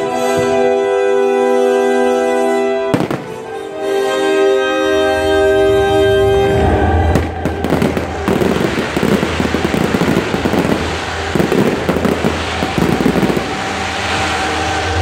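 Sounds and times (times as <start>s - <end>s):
fireworks crackling: 2.9s - 3.8s, 7.1s - 15.0s
fireworks hiss: 7.2s - 15.0s.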